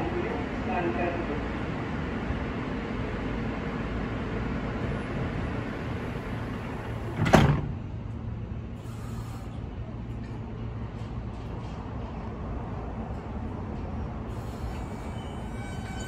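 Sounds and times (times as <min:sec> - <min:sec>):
standing train humming: 0:00.0 - 0:16.0
subway doors sliding shut: 0:05.1 - 0:07.9, 0:08.7 - 0:16.0
loud door thud: 0:07.1 - 0:07.7.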